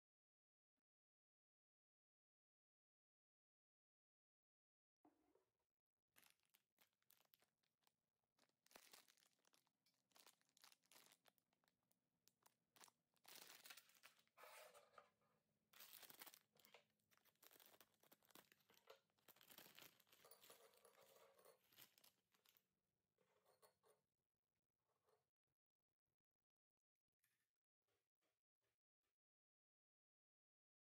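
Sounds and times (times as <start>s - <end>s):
plastic bag crinkling and tearing: 6.2s - 14.4s, 15.8s - 20.6s, 21.6s - 22.6s.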